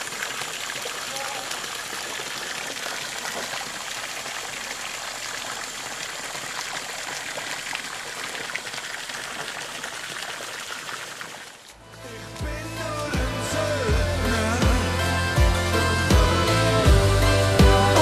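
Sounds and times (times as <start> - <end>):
water splashing into stone trough: 0.0 - 12.5.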